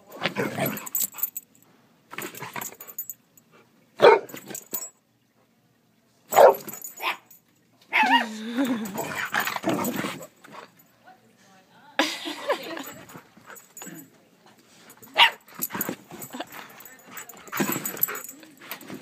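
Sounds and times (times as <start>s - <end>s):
dog barking: 4.0s - 4.4s, 6.3s - 7.3s, 15.2s - 15.4s
dog whining: 7.9s - 9.3s.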